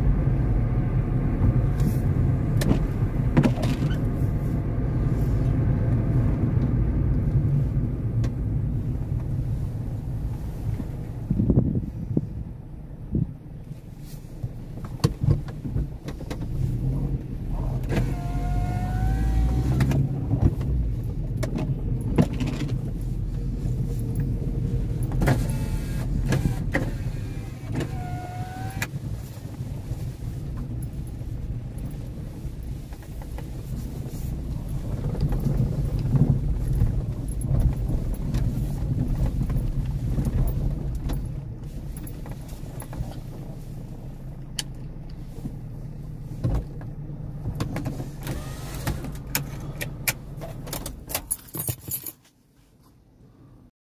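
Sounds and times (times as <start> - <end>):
car road and engine rumble: 0.0 - 53.7.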